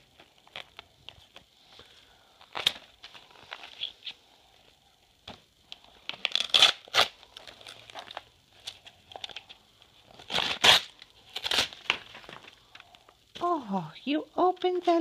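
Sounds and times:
paper crinkling and tearing: 6.0 - 9.5, 10.1 - 12.8.

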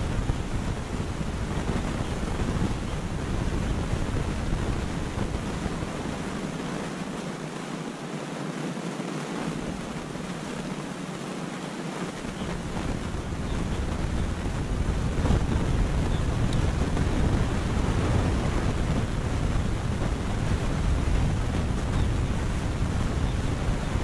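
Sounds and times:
wind buffeting microphone: 0.0 - 7.7, 9.2 - 24.0.

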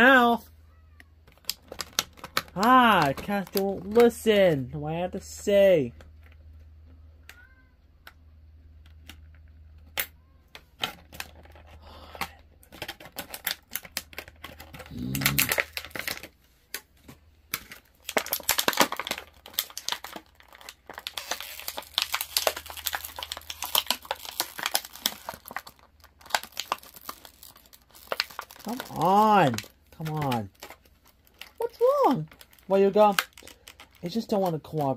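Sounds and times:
plastic packaging crinkling: 1.2 - 4.5, 10.6 - 34.9.

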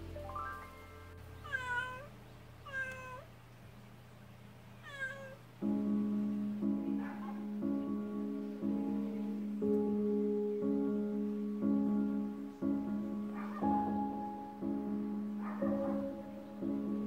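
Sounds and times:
soft background music: 0.0 - 2.2, 5.6 - 17.0
cat meowing: 1.4 - 3.3, 4.8 - 5.4.

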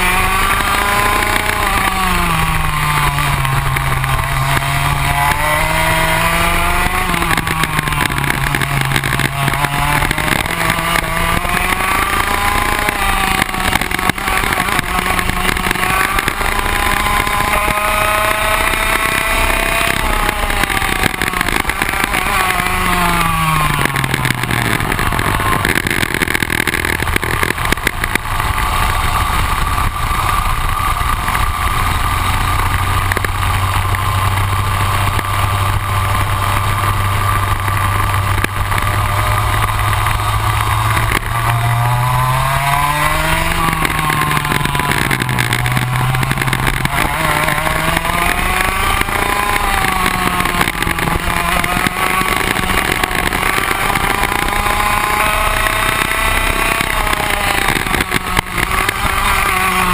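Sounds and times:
kart engine at speed: 0.0 - 59.9.

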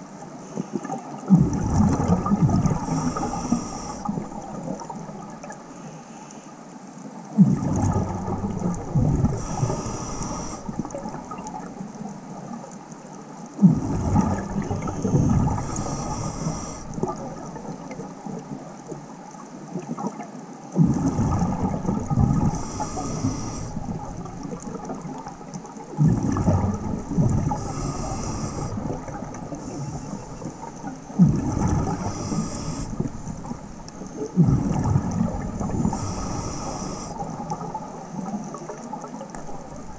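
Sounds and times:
exhaust bubbles rushing underwater: 0.8 - 5.6, 7.4 - 12.7, 13.6 - 19.0, 19.7 - 39.9
regulator hissing on inhale: 2.7 - 4.4, 9.3 - 11.0, 15.0 - 17.2, 22.4 - 24.1, 27.5 - 30.9, 31.7 - 33.6, 35.8 - 37.6.

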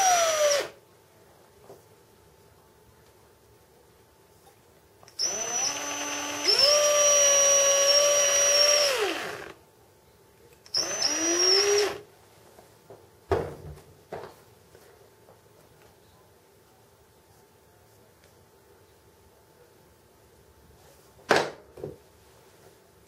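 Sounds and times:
cordless drill drilling: 0.0 - 0.8, 5.2 - 9.6, 10.7 - 12.0.

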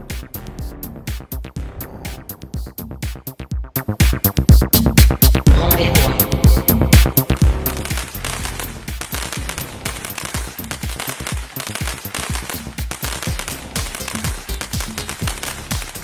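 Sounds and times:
firework cake firing shots: 7.2 - 16.0.

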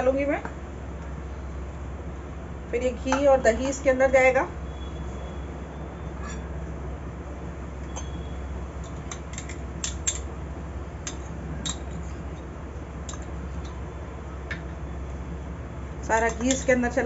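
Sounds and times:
metal spoon clinking glass: 7.9 - 8.2, 11.0 - 12.0, 16.2 - 16.7.

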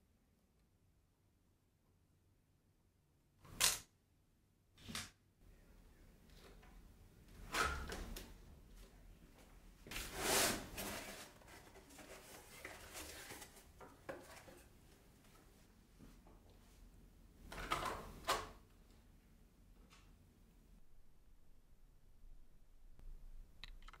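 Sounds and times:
cardboard rustling and scraping: 10.0 - 14.7.

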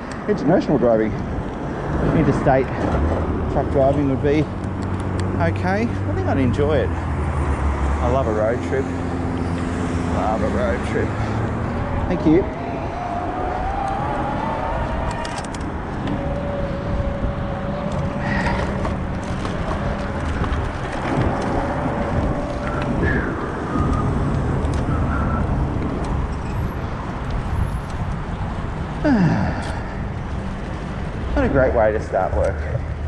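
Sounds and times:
traffic: 0.0 - 33.0
tyre and road rumble: 0.0 - 33.0
steady whine: 8.3 - 26.2
wind on microphone: 9.1 - 31.4.

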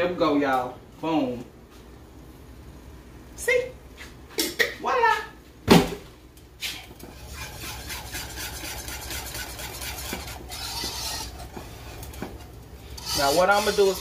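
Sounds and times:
whisk scraping in saucepan: 7.0 - 14.0.

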